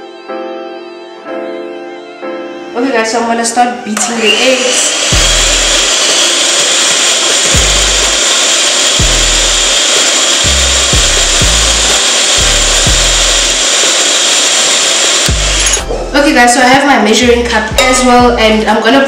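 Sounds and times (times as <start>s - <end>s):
whisk beating eggs: 4.4s - 15.8s
background music with deep bass: 5.2s - 6.0s, 7.5s - 8.2s, 8.9s - 13.7s, 15.3s - 16.5s, 17.2s - 18.8s.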